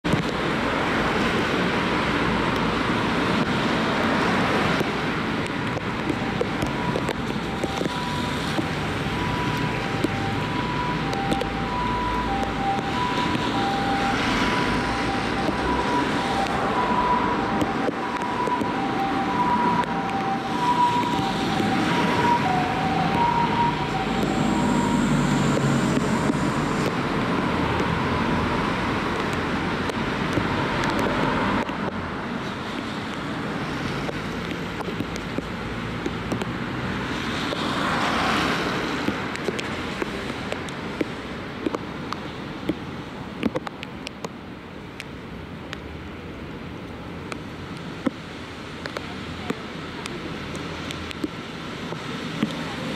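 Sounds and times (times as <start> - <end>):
road traffic: 0.0 - 52.9
ambulance two-tone siren: 6.0 - 29.1, 30.4 - 31.7.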